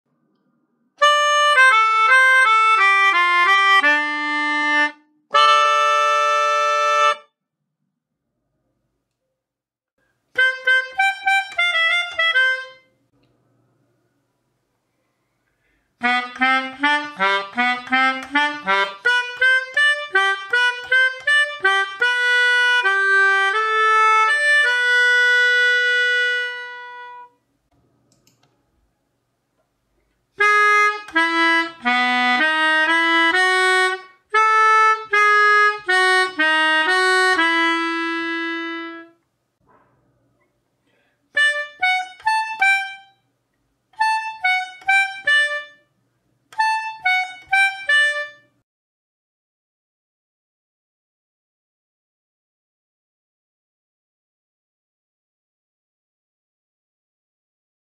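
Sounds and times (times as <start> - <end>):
melodica playing melodies: 1.0 - 7.3, 10.3 - 13.0, 16.0 - 27.4, 30.4 - 39.2, 41.4 - 43.2, 44.0 - 45.9, 46.5 - 48.6.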